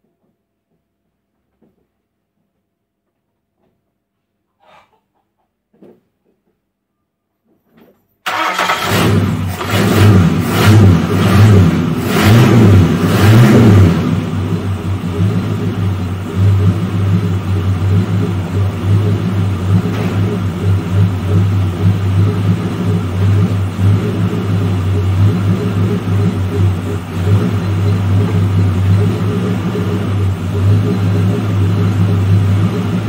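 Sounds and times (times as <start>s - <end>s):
car engine revving and idling: 8.3s - 33.0s.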